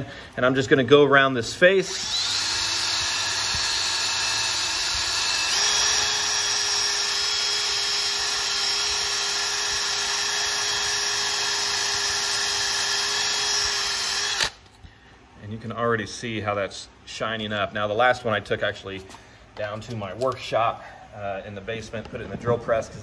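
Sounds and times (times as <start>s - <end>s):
drill with wire brush on steel: 1.8s - 14.8s.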